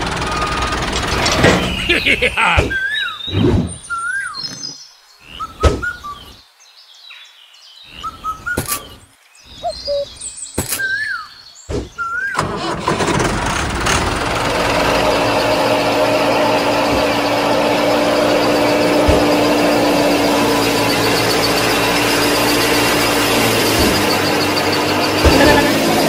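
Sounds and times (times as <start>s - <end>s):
bird-like chirps: 1.6s - 12.4s
small electric motor humming: 14.8s - 26.0s.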